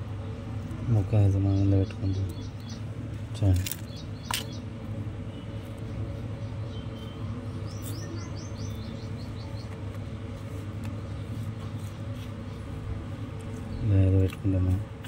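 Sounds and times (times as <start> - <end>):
steady low hum: 0.0 - 15.0
small bird chirping: 1.4 - 4.7, 5.3 - 9.9.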